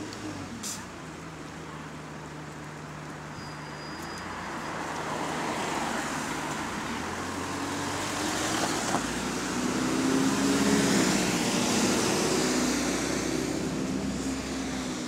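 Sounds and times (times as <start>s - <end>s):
bus diesel engine accelerating: 6.0s - 15.0s.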